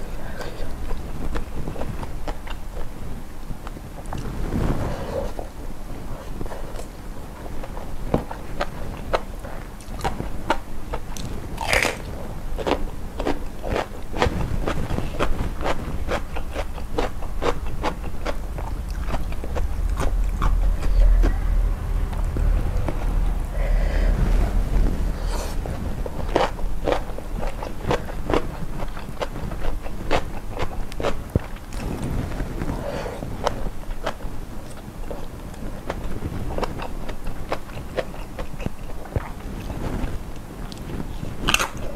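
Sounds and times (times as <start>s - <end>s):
crunchy chewing of prawns: 6.1s - 21.2s, 24.5s - 41.9s
low rumble: 15.0s - 29.6s, 31.4s - 34.8s.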